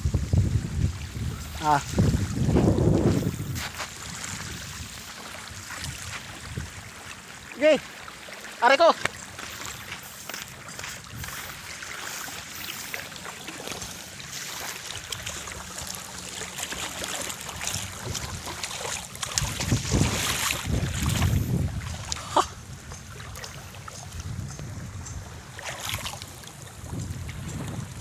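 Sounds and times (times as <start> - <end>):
wind buffeting microphone: 0.0 - 7.0, 10.6 - 11.8, 17.4 - 28.0
small waves washing on beach: 0.0 - 28.0.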